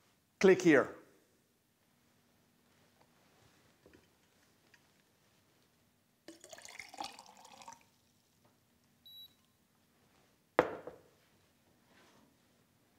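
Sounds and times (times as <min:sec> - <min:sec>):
water pouring into glass mug: 0:06.3 - 0:08.3
short high beep: 0:09.1 - 0:09.4
glass carafe set down knock: 0:10.6 - 0:11.1.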